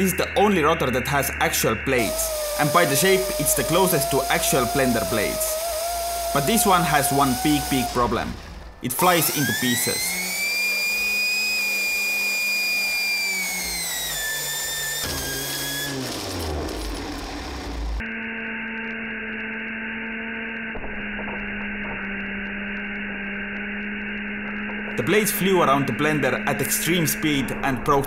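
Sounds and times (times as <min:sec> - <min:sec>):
high-pitched rotor whine: 0:00.0 - 0:28.0
dull low hum: 0:01.8 - 0:09.0.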